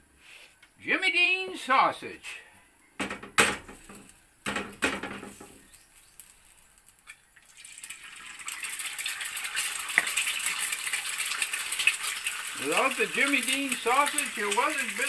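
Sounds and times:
egg sizzling in hot oil: 3.6s - 15.0s.

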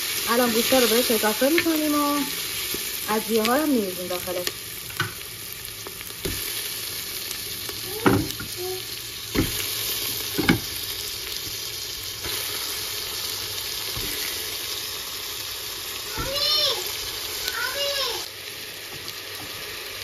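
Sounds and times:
onions sizzling in hot oil: 0.0s - 20.0s.

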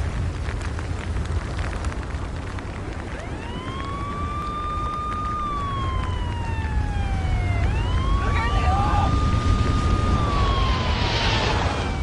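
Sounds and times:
crackles: 0.0s - 12.0s
low rumble: 0.0s - 12.0s
siren wailing: 3.0s - 12.0s.

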